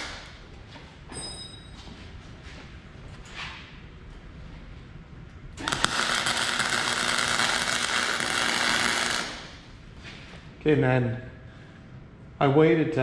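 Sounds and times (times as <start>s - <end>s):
welding arc burning: 0.0s - 0.3s, 5.6s - 9.7s
sharp ticks of arc striking: 5.6s - 9.5s.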